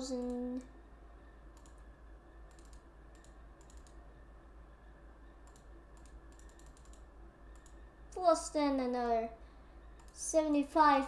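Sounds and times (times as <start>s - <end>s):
low hum: 0.0s - 11.0s
computer mouse clicks: 0.1s - 0.7s, 1.5s - 4.0s, 5.4s - 7.8s, 10.0s - 10.2s.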